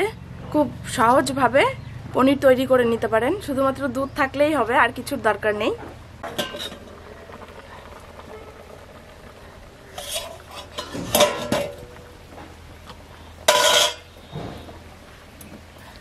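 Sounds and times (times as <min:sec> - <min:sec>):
metal utensils and pots clattering: 0:06.2 - 0:07.0, 0:09.8 - 0:12.3, 0:13.4 - 0:14.2.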